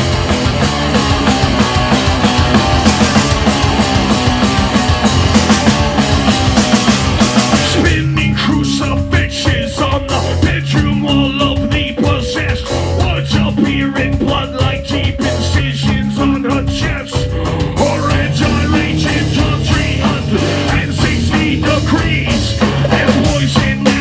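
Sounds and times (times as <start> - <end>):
live rock band playing: 0.0 - 24.0.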